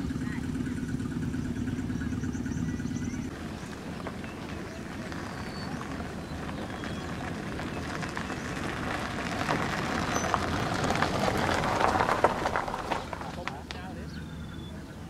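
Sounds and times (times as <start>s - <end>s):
faint high bird chirps: 0.8s - 8.5s, 14.0s - 15.0s
crackling rustling hiss: 3.3s - 13.8s.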